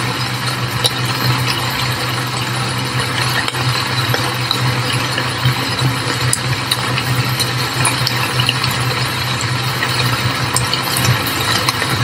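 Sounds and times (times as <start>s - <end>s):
rain on window glass: 0.0s - 12.0s.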